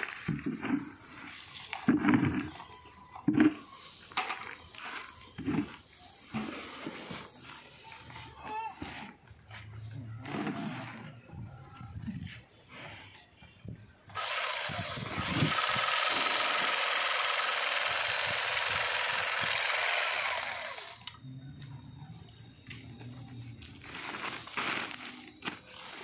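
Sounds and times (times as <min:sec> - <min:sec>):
electric sewing machine buzzing: 0:14.2 - 0:21.1.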